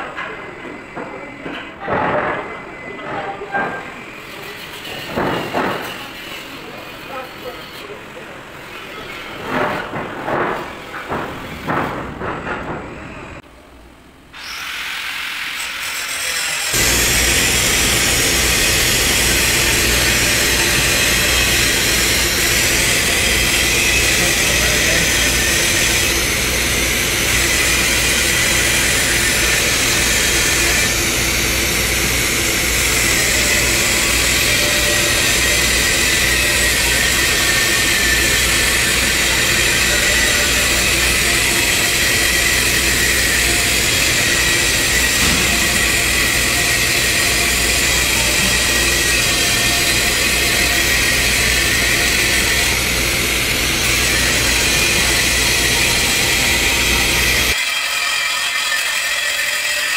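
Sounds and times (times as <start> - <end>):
welding arc hissing: 14.4 - 57.6
low machine hum: 16.8 - 57.6.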